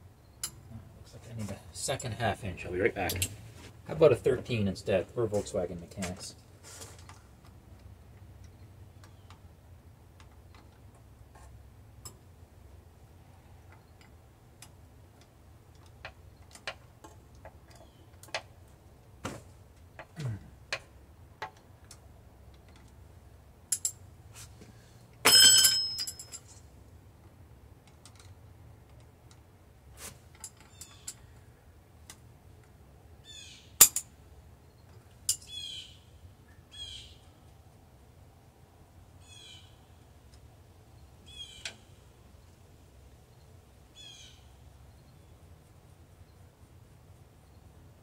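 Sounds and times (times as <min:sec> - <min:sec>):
wrenches clinking on metal: 0:23.7 - 0:24.0, 0:25.3 - 0:26.6
metal clang: 0:25.2 - 0:26.4
bird chirping: 0:33.2 - 0:33.8, 0:34.6 - 0:37.4, 0:39.2 - 0:40.1, 0:40.9 - 0:42.5, 0:43.3 - 0:45.5.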